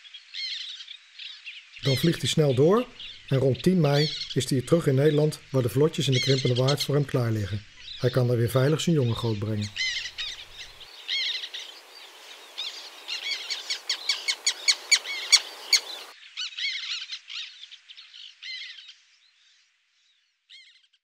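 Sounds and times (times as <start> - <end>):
background hiss: 0.0 - 16.4
terns calling: 0.0 - 19.2.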